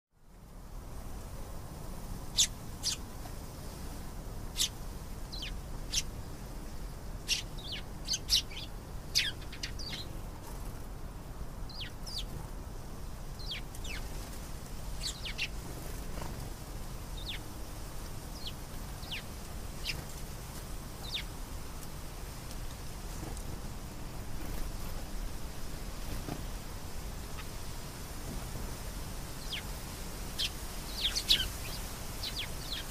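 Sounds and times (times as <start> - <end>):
steady low hum: 0.2 - 32.9
canary chirping: 2.3 - 3.0, 4.6 - 6.1, 7.3 - 10.1, 11.7 - 12.3, 13.4 - 14.1, 15.0 - 15.6, 17.2 - 17.4, 18.3 - 20.0, 21.0 - 21.3, 29.4 - 29.7, 30.3 - 32.9.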